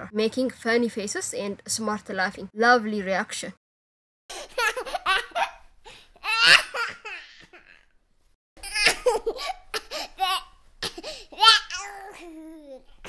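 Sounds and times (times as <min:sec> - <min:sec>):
baby laughing: 0:04.3 - 0:07.8, 0:08.6 - 0:13.0.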